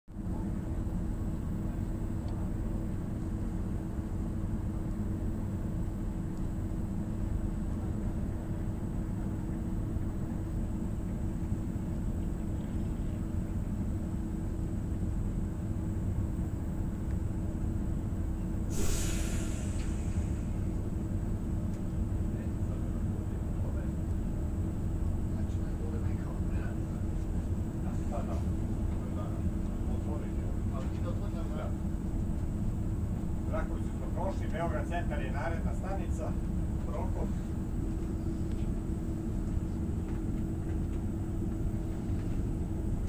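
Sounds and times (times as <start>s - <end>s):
train rumble and hum: 0.1s - 43.0s
short sharp hiss: 18.7s - 20.5s.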